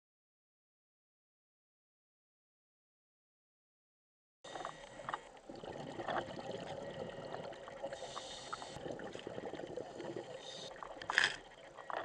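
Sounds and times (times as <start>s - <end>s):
exhaled regulator bubbles hissing: 4.5s - 12.0s
underwater bubbling: 4.5s - 12.0s.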